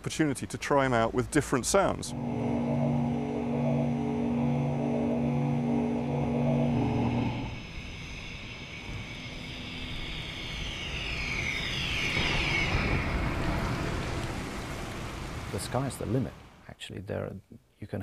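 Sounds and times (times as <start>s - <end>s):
high whine gliding down: 1.5s - 15.5s
pulsing electric hum: 1.6s - 15.2s.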